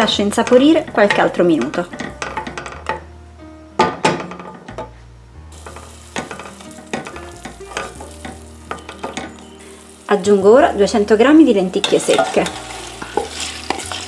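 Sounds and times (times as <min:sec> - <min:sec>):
vegetables sizzling in oil: 0:00.0 - 0:03.1, 0:05.3 - 0:14.0
wooden spoon scraping a pot: 0:11.8 - 0:14.0.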